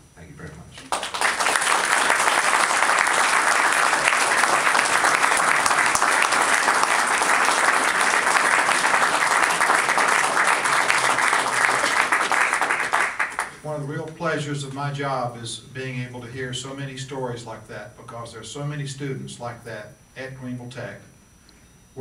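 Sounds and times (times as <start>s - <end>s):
audience applauding: 0.8s - 13.6s.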